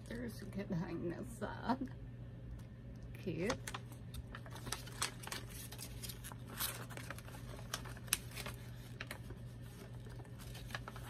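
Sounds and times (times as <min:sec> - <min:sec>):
paper crinkling: 0:03.4 - 0:11.0
paper rustle: 0:03.4 - 0:11.0.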